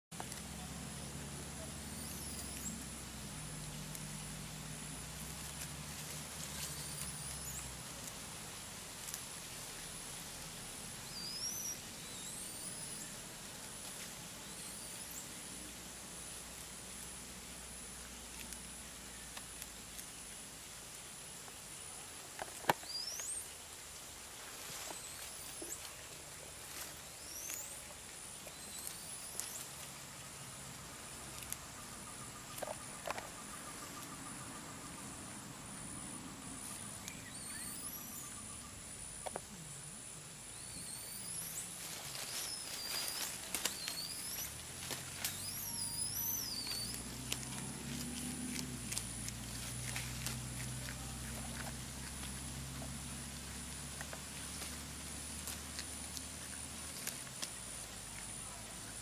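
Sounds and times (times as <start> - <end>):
leaves rustling and clicking: 0.1 - 39.9, 40.5 - 59.0
high insect drone: 0.2 - 59.0
low steady hum: 0.2 - 59.0
short rising whistled calls: 11.1 - 13.1, 37.1 - 38.8, 40.6 - 41.7, 42.3 - 44.6, 45.2 - 47.1
faint ticks: 31.2 - 34.2
high chirps: 40.6 - 48.7.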